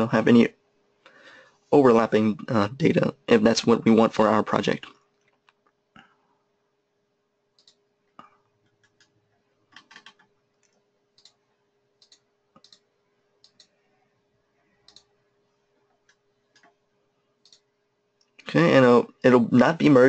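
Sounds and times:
faint low hum: 0.0 - 20.0
computer mouse clicks: 7.6 - 7.8, 8.6 - 11.4, 12.0 - 13.8, 14.8 - 15.1, 16.0 - 16.8, 17.4 - 18.4.

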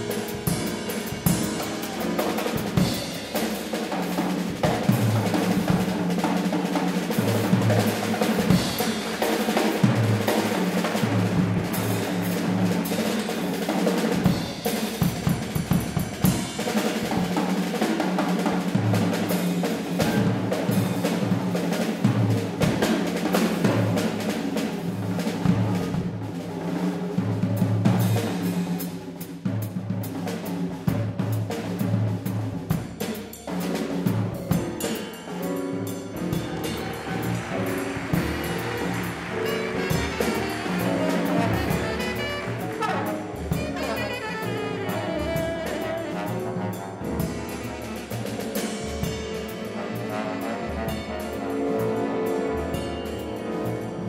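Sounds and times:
drum set snare and bass drum: 0.0 - 54.0
live jazz band: 0.0 - 54.0
bass line: 36.0 - 48.9.

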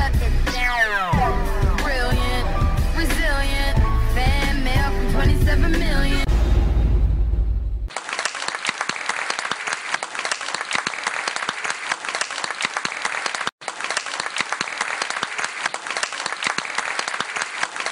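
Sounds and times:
audience applauding: 7.9 - 17.9.

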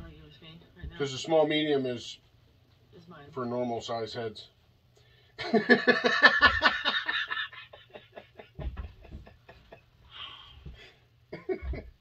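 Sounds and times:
man laughing heartily: 5.4 - 10.1, 11.3 - 12.0
dull thumps: 8.6 - 9.7.

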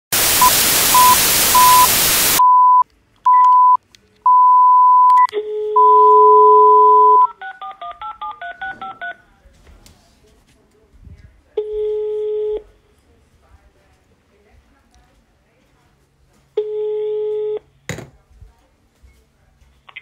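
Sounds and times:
loud hiss: 0.1 - 2.4
dial tone: 0.4 - 7.3
telephone beeps: 0.4 - 9.2
touch-tone keypad tones: 0.4 - 9.2.

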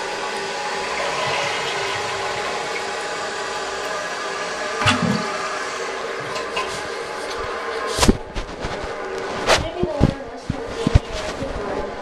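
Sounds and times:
water trickling: 0.0 - 7.7
toilet fill valve hissing: 0.0 - 8.0.

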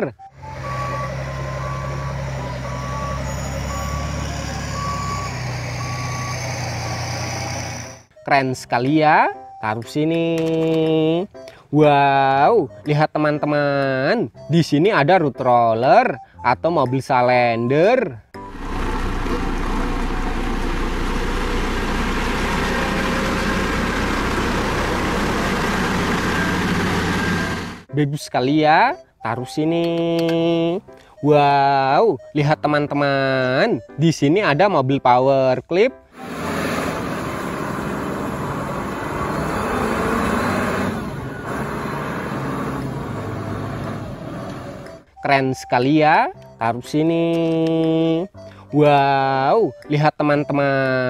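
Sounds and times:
asphalt roller diesel engine drone: 0.0 - 8.2, 18.4 - 27.9, 35.9 - 45.2.

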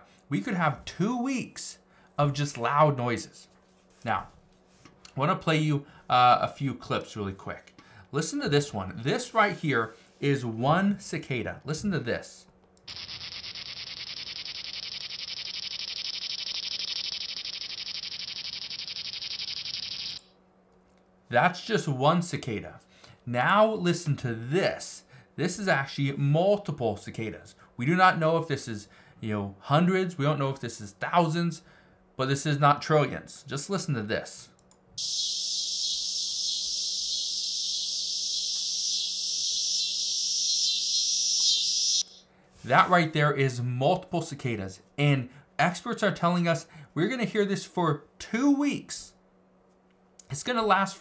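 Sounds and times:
cicada buzzing: 12.9 - 20.3, 35.0 - 42.2.

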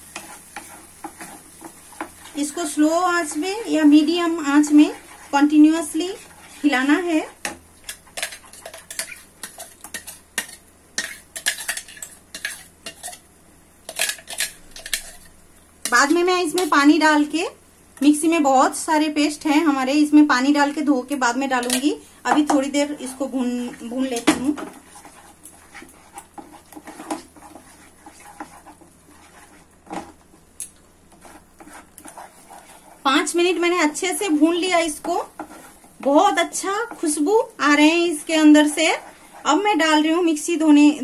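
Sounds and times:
wooden spatula scraping metal pan: 0.0 - 13.2, 21.6 - 30.2, 31.1 - 37.3, 37.9 - 40.0
paste frying: 0.0 - 41.0
spatula scraping thick paste: 4.4 - 7.4, 24.7 - 30.0, 31.1 - 33.3, 35.3 - 36.0, 38.3 - 39.7.

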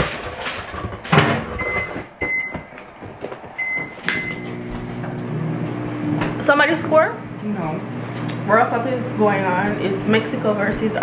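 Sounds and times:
microwave keypad beeps: 1.6 - 2.6, 3.6 - 4.5.

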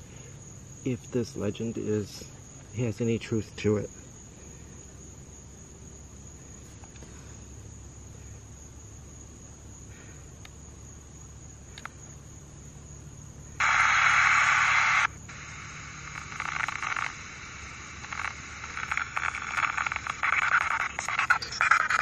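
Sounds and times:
radio static bursts: 13.6 - 22.0.

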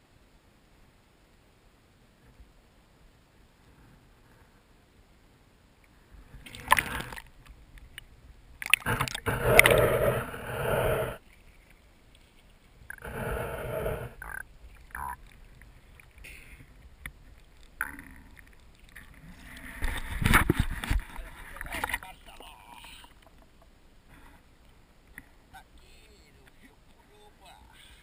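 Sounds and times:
water sloshing and splashing: 6.4 - 8.0, 8.6 - 10.2.

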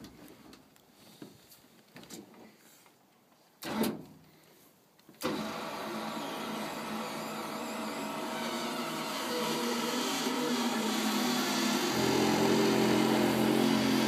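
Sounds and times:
machine humming: 9.0 - 14.0.

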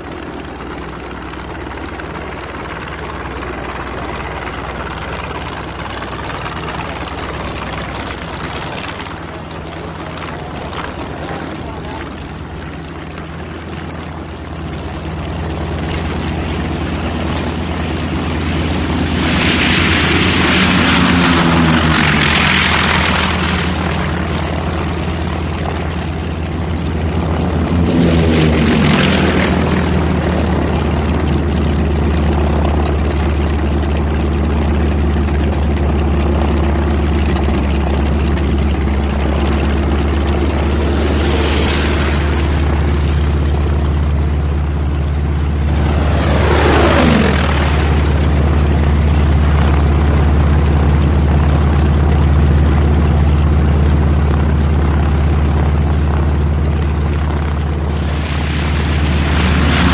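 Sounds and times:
plane passing close: 0.0 - 59.9
propeller planes droning: 0.0 - 59.9.

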